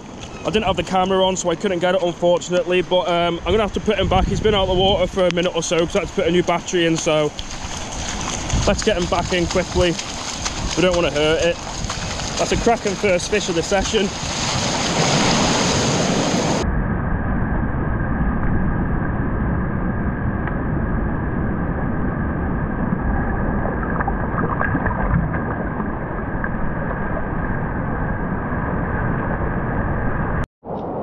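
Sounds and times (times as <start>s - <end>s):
surf washing over sand: 0.0s - 16.6s.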